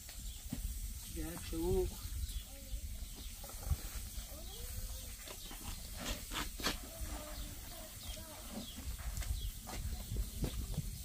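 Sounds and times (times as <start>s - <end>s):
wind rumble on microphone: 0.0s - 11.0s
cement mortar scraping in wheelbarrow: 5.1s - 9.2s.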